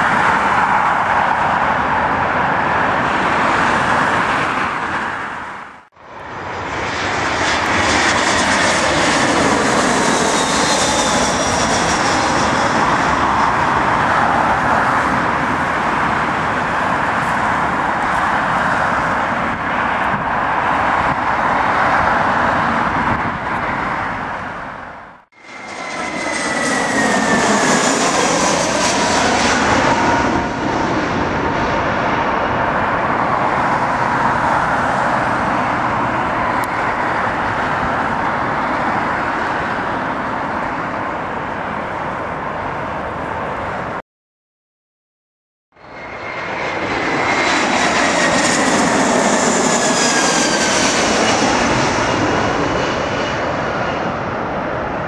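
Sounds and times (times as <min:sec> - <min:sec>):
jet engine whine: 0:00.0 - 0:44.0, 0:45.7 - 0:55.0
jet engines roaring: 0:00.0 - 0:44.0, 0:45.7 - 0:55.0.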